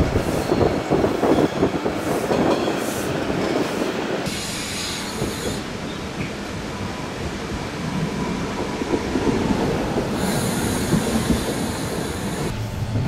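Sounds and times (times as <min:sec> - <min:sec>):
train wheels rolling on rails: 0:00.0 - 0:13.0
high-pitched hiss: 0:04.3 - 0:06.2, 0:10.2 - 0:12.8.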